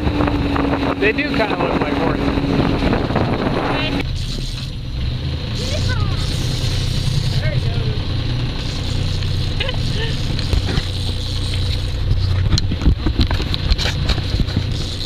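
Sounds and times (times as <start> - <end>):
low drone: 0.0 - 15.0
water noise: 0.0 - 15.0
wind: 0.0 - 15.0
gear knocking and clattering: 8.6 - 15.0.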